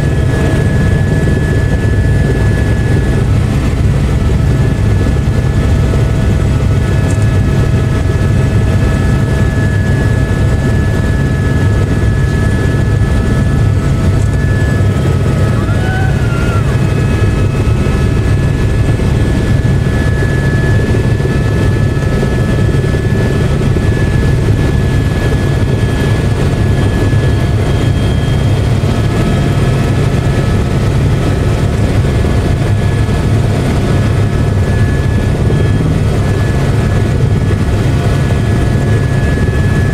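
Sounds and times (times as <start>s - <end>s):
helicopter rotor and engine drone: 0.0s - 39.9s
thin whining tones: 8.3s - 26.0s.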